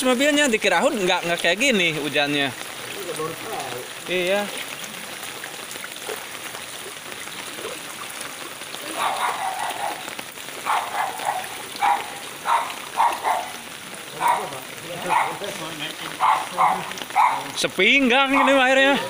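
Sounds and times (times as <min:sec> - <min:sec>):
heavy rain on water: 0:00.0 - 0:19.0.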